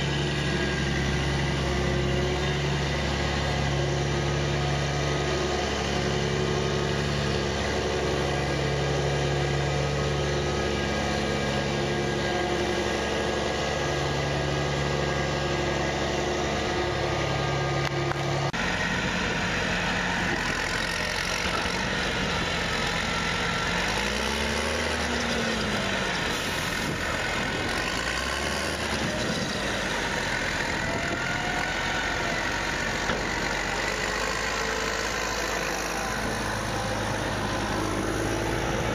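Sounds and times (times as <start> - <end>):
crawler tractor diesel engine: 0.0 - 38.9
tractor engine revving: 0.0 - 38.9.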